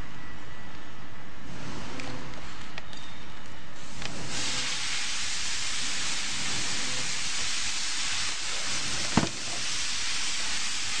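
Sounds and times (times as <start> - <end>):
steady hiss: 3.8 - 11.0.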